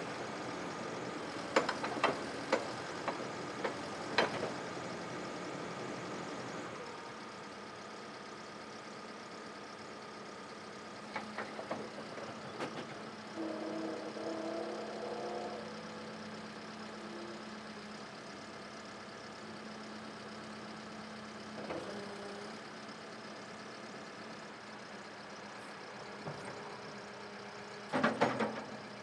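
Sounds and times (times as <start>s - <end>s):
diesel engine idling: 0.0s - 29.0s
hydraulic whine: 11.2s - 18.0s.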